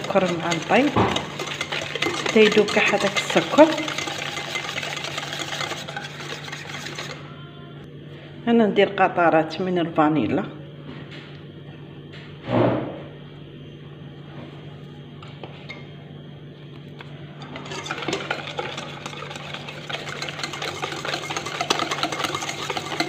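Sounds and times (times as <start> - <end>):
whisk clattering in metal bowl: 0.0 - 7.2, 17.4 - 23.0
steady low hum: 0.0 - 23.0.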